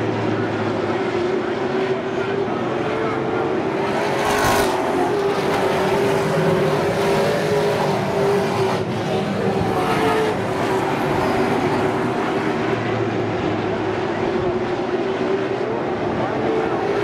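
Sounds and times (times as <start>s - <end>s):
race car engines droning: 0.0s - 17.0s.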